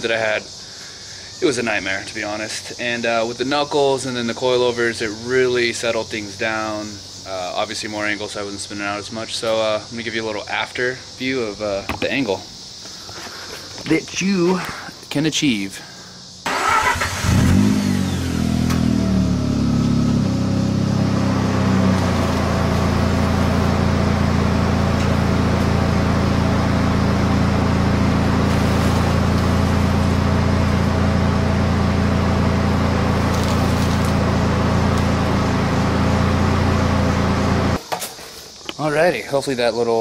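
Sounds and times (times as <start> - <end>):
rotary engine starting and idling: 16.4 - 37.8.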